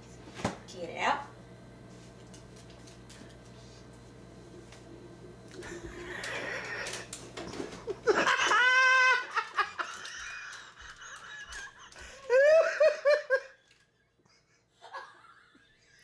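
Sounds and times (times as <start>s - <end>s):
person laughing: 7.7s - 16.0s.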